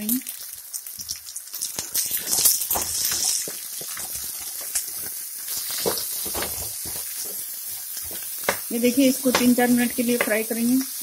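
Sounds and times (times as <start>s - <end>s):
food sizzling in oil: 0.0s - 11.0s
wooden spatula scraping pan: 2.2s - 10.4s.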